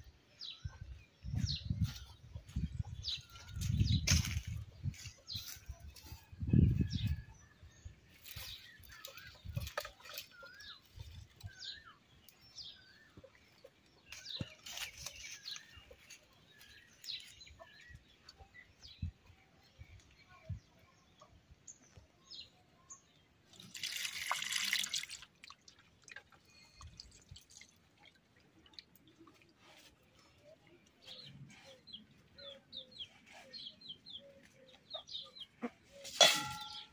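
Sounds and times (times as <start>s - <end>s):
small birds chirping: 0.0s - 24.0s, 25.9s - 36.9s
dry twigs crackling and rustling: 3.5s - 6.2s, 8.1s - 11.6s, 14.4s - 17.3s.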